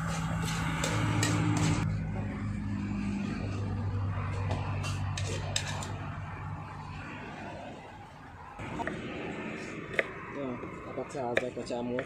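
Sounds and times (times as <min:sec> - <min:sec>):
metal ladle scraping wok: 0:00.0 - 0:01.9, 0:04.7 - 0:06.2
low engine hum: 0:00.0 - 0:11.0.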